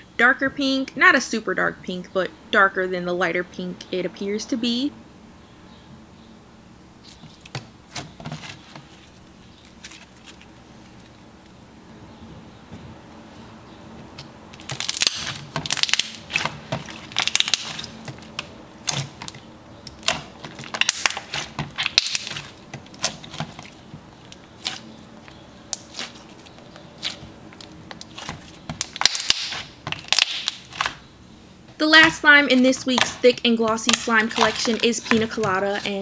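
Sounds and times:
slime popping and crackling: 14.6 - 31.0, 32.0 - 36.0.

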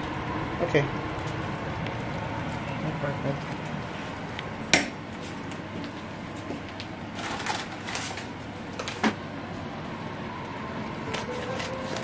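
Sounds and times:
plastic packet crinkling: 11.0 - 12.0.

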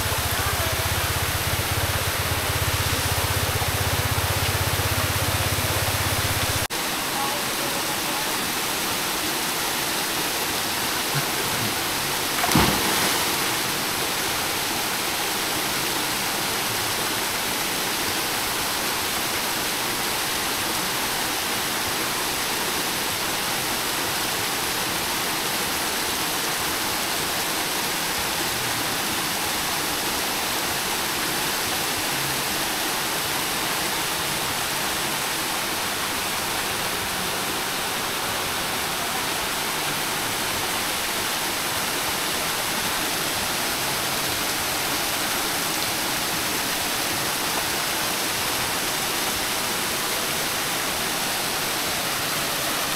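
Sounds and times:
waterfalls rushing into pool: 0.0 - 52.9
person splashing into water: 12.3 - 13.9.

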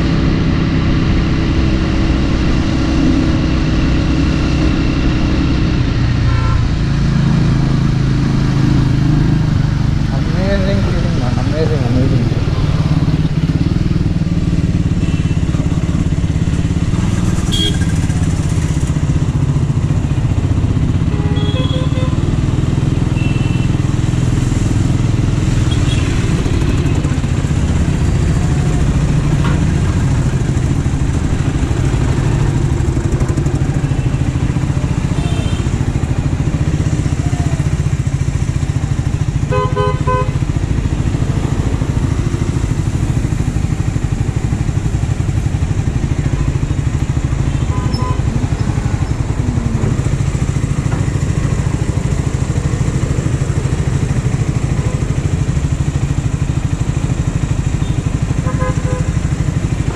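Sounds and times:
motorcycle engine running: 0.0 - 59.9
vehicle horns honking: 6.3 - 6.8, 17.4 - 18.1, 21.1 - 22.3, 23.2 - 23.8, 35.1 - 35.8, 39.4 - 40.5, 47.5 - 48.8, 57.8 - 59.2.

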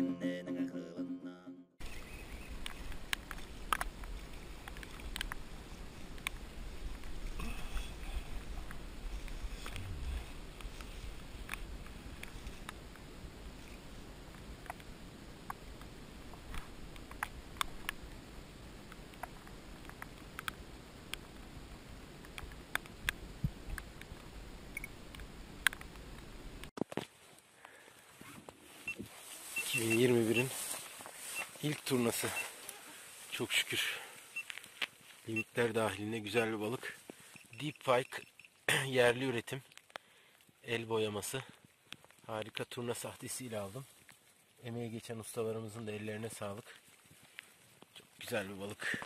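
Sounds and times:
light rain pattering: 1.8 - 49.0
raindrop ticks: 1.9 - 18.2, 18.8 - 26.7, 37.0 - 44.6
wind rumble on microphone: 2.3 - 19.9.

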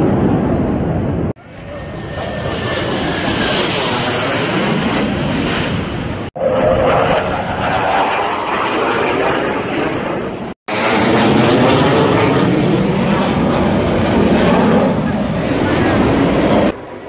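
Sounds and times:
fighter jet flying overhead: 0.0 - 17.0.

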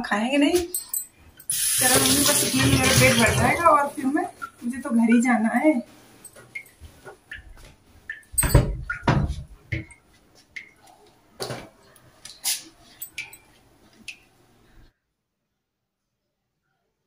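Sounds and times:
sharp knocks and clatters: 8.1 - 10.0.

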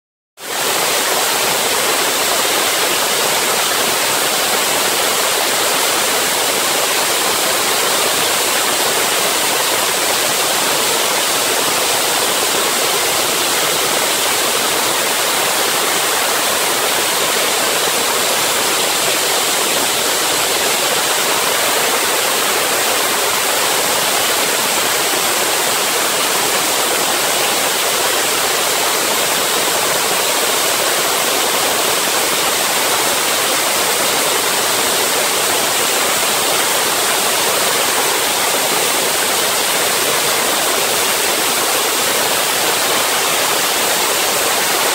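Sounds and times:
saw blade cutting stone with water: 0.5 - 44.9.

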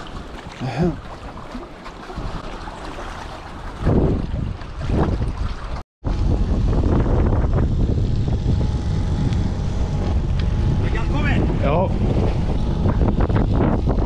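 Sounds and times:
water lapping around boat: 0.0 - 14.0
wind buffeting microphone: 3.6 - 14.0.

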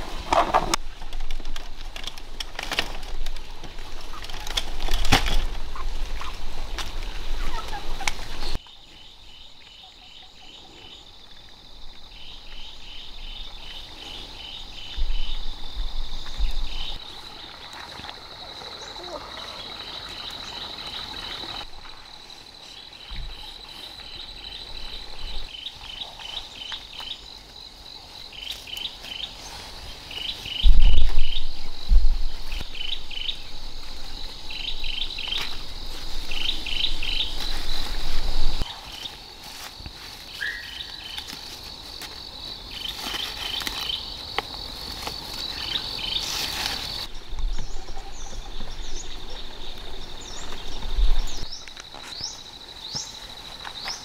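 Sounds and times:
insects droning: 0.0 - 54.0
birds chirping: 28.3 - 39.2, 40.3 - 41.3, 45.4 - 54.0.

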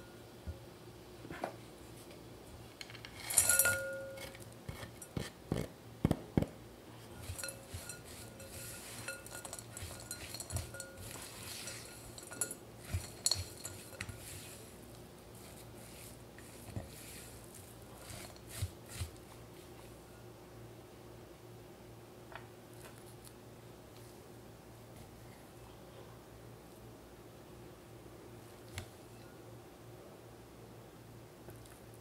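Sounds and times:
glass bowl ringing: 3.3 - 4.3, 7.2 - 12.6
spatula clinking against glass bowl: 3.3 - 4.3, 7.2 - 14.7
spatula scraping dough in bowl: 7.1 - 20.0.

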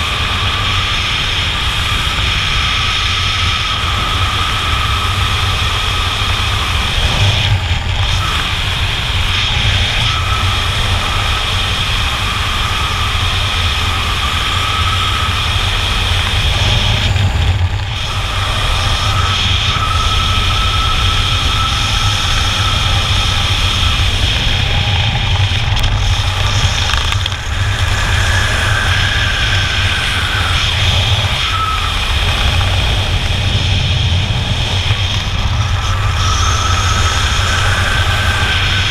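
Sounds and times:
wind buffeting microphone: 0.0 - 38.9
faint thin whistle: 31.3 - 32.0.

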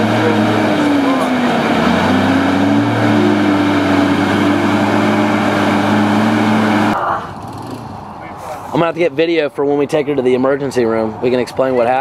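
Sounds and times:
truck engine running: 0.0 - 7.6.

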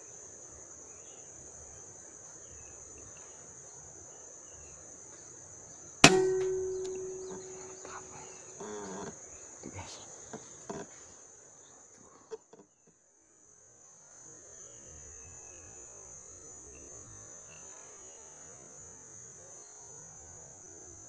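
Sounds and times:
rifle shot ringing: 6.0 - 8.1.

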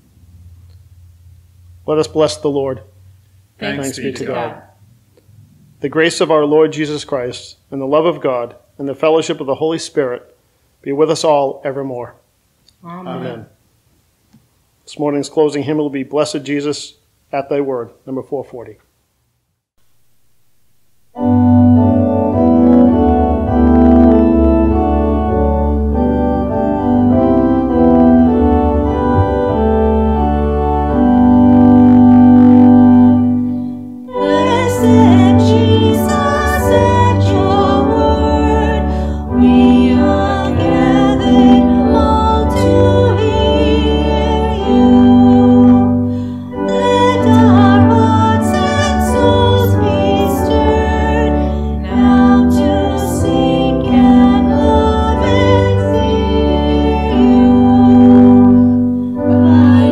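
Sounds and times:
church organ playing a hymn: 1.6 - 2.8, 3.6 - 4.5, 5.8 - 8.4, 21.1 - 59.9
person singing: 3.6 - 4.7, 34.1 - 59.9.

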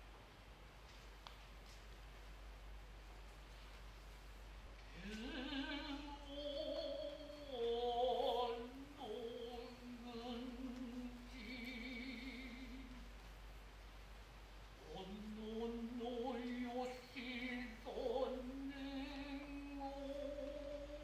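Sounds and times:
man chanting: 14.8 - 21.0.

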